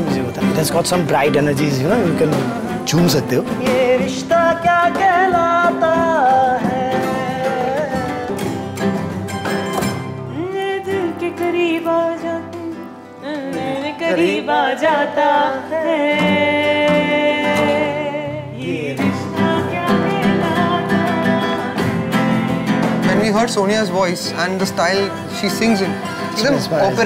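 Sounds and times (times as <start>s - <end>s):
acoustic guitars strumming: 0.0s - 27.0s
woman singing with vibrato: 2.5s - 8.7s, 10.2s - 23.1s.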